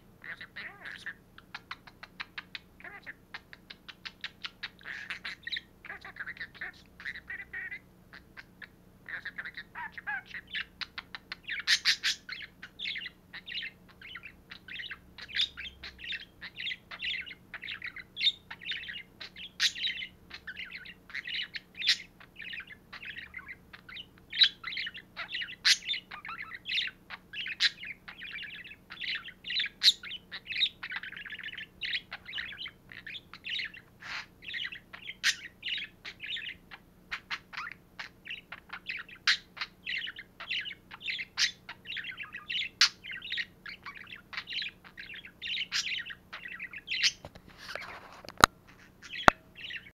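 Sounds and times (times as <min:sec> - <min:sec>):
budgerigar warbling and chattering: 0:00.2 - 0:48.1, 0:48.7 - 0:49.9.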